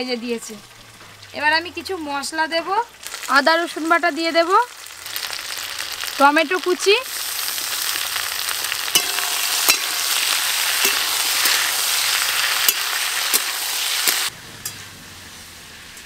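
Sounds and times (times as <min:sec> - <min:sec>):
vegetables sizzling in hot oil: 0:00.0 - 0:16.0
spatula scraping a wok: 0:07.2 - 0:16.0.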